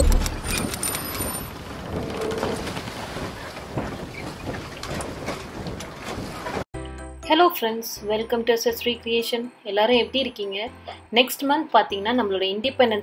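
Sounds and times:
low hit: 0.0s - 0.7s
scattered clicks: 0.0s - 1.4s.

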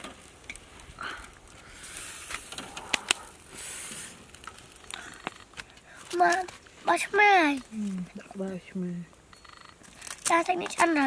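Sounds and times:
hissy bursts: 0.9s - 4.4s.

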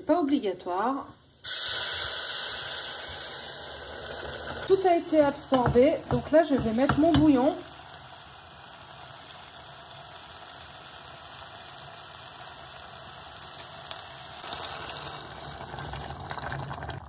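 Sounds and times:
rice simmering soft sizzle: 0.1s - 17.0s
broth splashing into pan: 1.4s - 11.4s, 13.4s - 17.0s.

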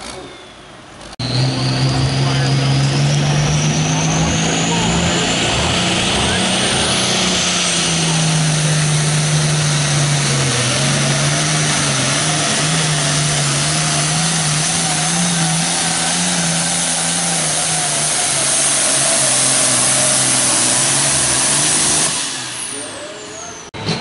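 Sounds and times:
tractor diesel engine under load: 0.0s - 24.0s.

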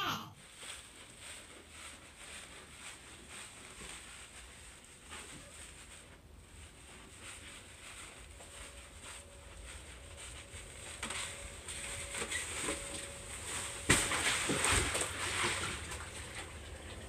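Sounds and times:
water sloshing in tub: 10.0s - 17.0s.

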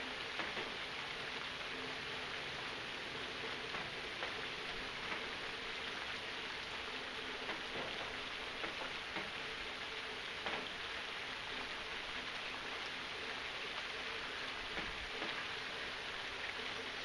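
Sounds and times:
steady rain: 0.0s - 17.0s
faint drip ticks: 0.2s - 1.6s, 3.4s - 5.4s, 7.3s - 10.9s, 14.6s - 17.0s.

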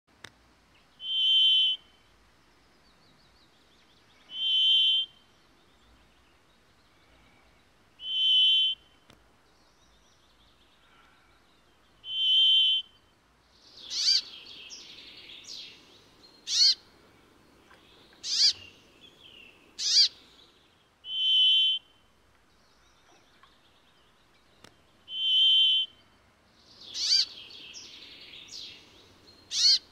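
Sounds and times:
sharp falling bird calls: 13.6s - 22.0s, 24.5s - 26.1s, 26.7s - 29.9s.

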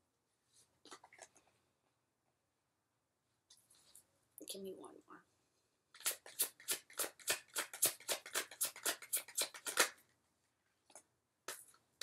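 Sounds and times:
cards being shuffled: 5.9s - 10.0s.

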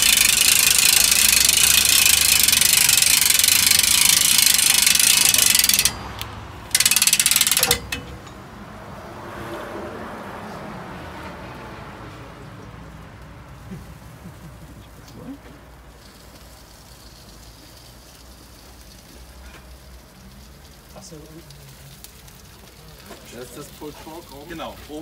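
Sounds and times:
gears clicking rapidly: 0.0s - 8.3s.

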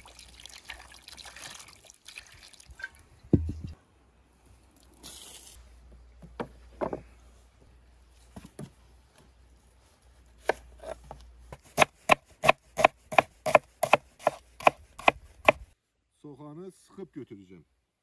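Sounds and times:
knife chopping on wooden board: 11.6s - 15.6s.

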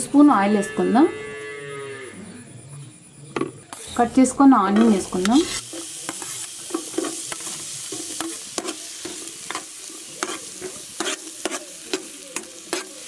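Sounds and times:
onion sizzling in hot oil: 3.7s - 13.0s
metal utensils scraping a pot: 3.8s - 13.0s.

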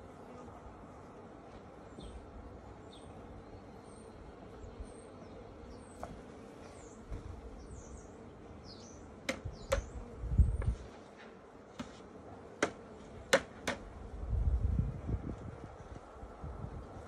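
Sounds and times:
small birds chirping: 1.8s - 11.0s
low thump of hive frame: 5.9s - 7.5s, 9.2s - 14.0s.

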